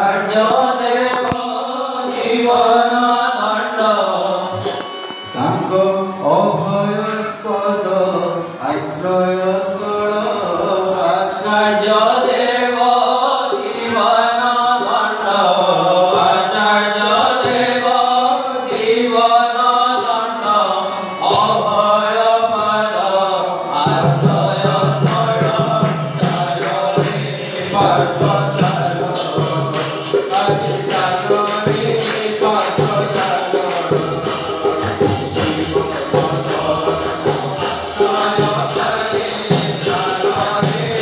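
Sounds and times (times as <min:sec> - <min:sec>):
light percussion strokes: 0:14.9 - 0:41.0
voices chanting: 0:15.3 - 0:41.0.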